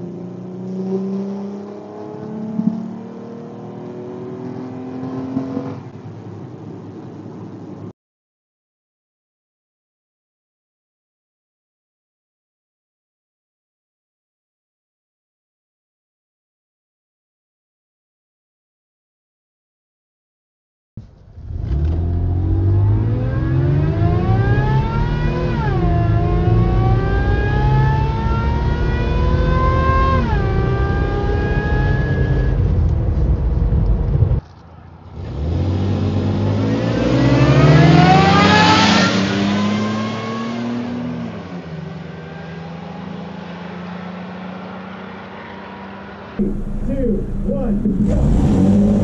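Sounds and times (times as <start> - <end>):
cars accelerating hard past roadside: 0.0 - 6.7, 21.3 - 32.6, 35.0 - 49.0
road and wind rumble: 0.0 - 8.0, 21.0 - 49.0
engine accelerating inside cabin: 21.4 - 34.4, 46.4 - 49.0.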